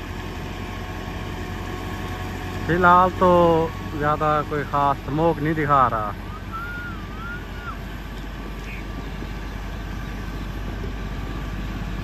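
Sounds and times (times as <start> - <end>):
tractor diesel engine under load: 0.0 - 12.0
wavering whistle-like tone: 6.2 - 7.9.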